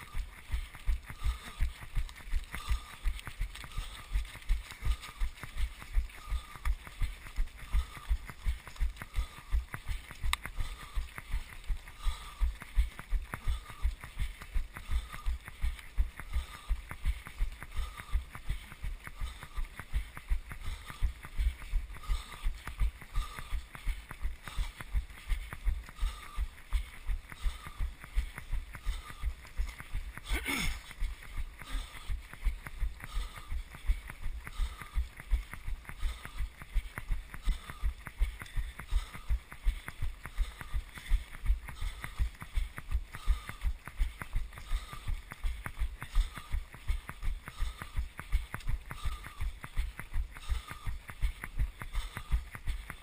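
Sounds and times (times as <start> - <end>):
sharp crackle: 0.0 - 39.2.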